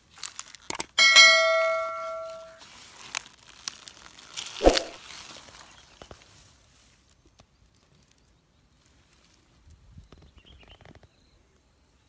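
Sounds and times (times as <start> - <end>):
bright bell ding: 1.0 - 2.6
rustling crunch with thump: 1.6 - 7.0.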